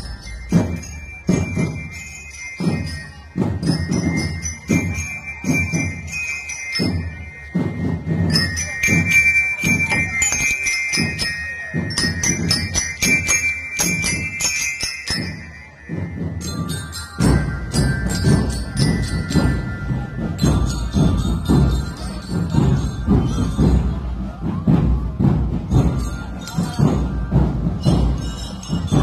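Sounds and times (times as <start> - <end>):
bass drums beating a march: 0.0 - 29.0
bell lyre melody: 0.0 - 29.0.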